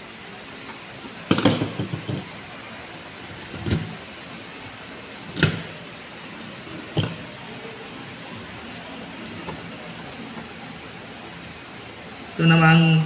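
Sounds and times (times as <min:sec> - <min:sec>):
wires knocking against panel box: 0:01.3 - 0:02.3.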